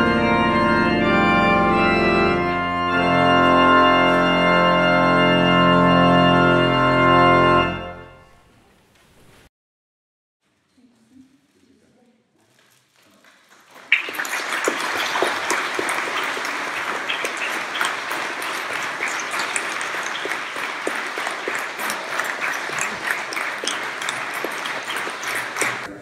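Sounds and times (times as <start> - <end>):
crowd applauding: 13.2 - 25.9.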